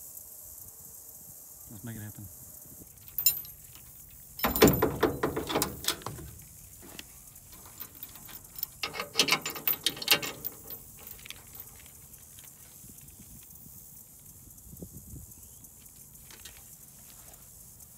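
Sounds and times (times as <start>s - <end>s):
safety chains clinking and rattling: 3.0s - 12.2s
trailer coupler set on hitch ball: 4.4s - 6.5s.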